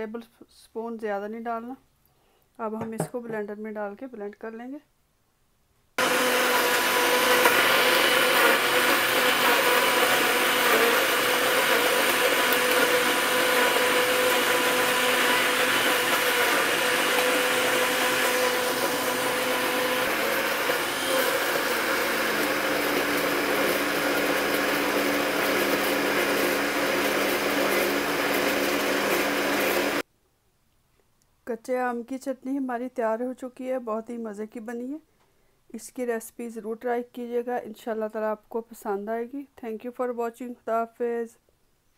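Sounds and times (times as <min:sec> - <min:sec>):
blender motor whine: 0:06.0 - 0:30.0.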